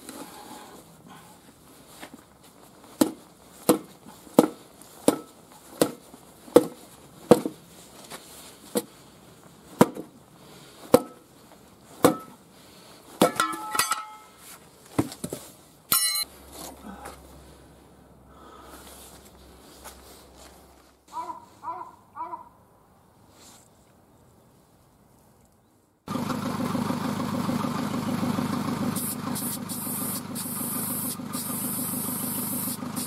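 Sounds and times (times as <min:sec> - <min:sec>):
metal clanking and ringing: 0:13.3 - 0:14.4, 0:15.9 - 0:16.3
hammer striking steel lever: 0:15.9 - 0:16.3.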